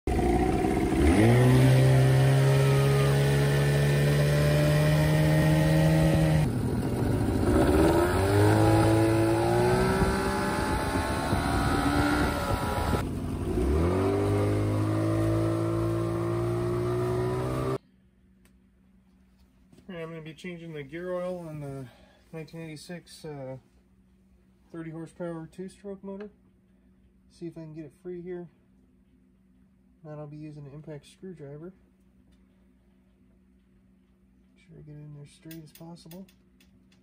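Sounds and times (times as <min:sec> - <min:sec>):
outboard motor revving: 0:00.1 - 0:17.8.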